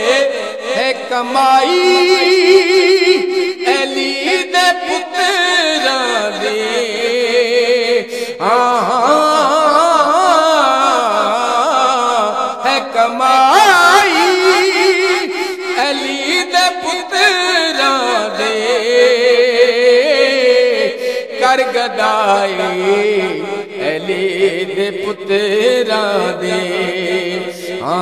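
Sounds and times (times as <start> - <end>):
man singing into microphone: 0.0 - 28.0.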